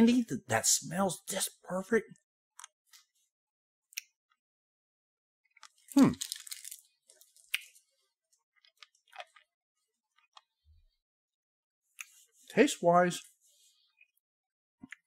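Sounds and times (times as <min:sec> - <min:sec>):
hard candy crunching: 0:05.6 - 0:07.8
candy clicking against teeth: 0:06.0 - 0:06.8.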